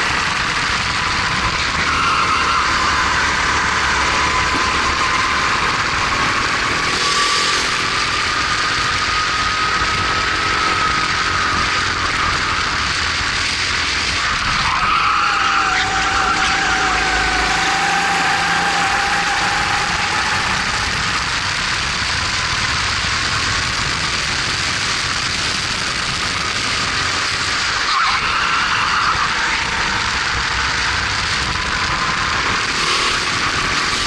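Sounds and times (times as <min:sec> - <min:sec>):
kart engine racing: 0:00.0 - 0:34.0
wind rushing: 0:14.0 - 0:27.6.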